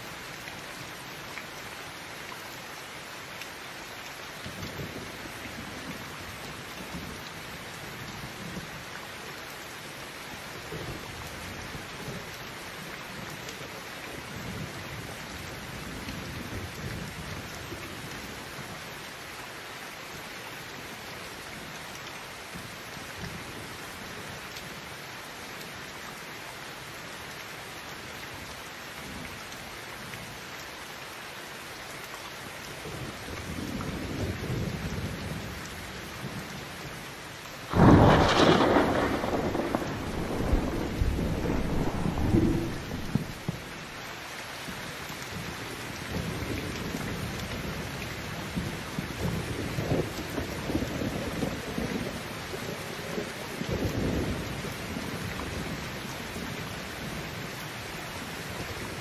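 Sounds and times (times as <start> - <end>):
heavy rain on roof: 0.0 - 59.0
thunder rumbling: 37.7 - 43.9.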